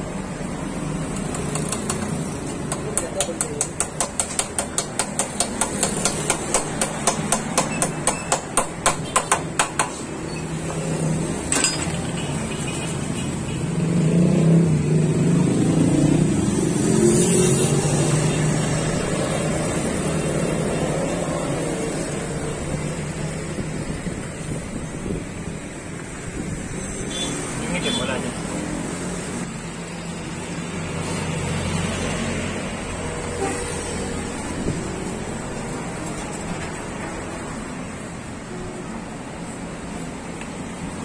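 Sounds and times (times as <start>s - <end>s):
hammer striking metal: 2.7s - 10.0s, 11.5s - 12.0s.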